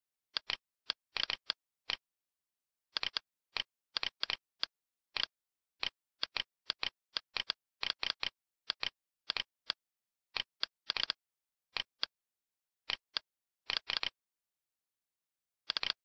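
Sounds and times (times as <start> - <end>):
computer mouse clicking: 0.4 - 2.0, 3.0 - 9.8, 10.4 - 11.2, 12.9 - 14.2, 15.7 - 16.0.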